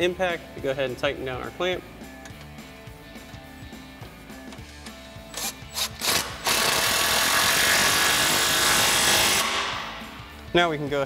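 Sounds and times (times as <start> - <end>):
impact wrench hammering: 5.4 - 10.4.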